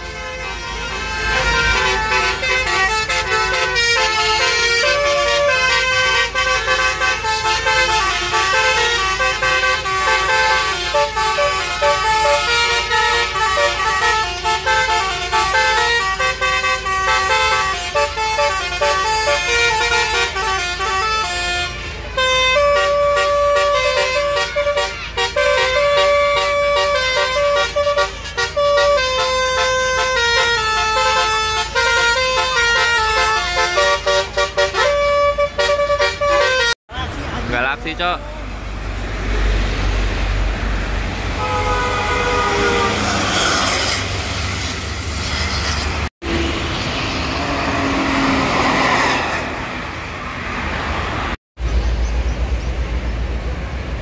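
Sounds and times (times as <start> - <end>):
air horns playing a tune: 0.0 - 36.8, 41.3 - 46.7.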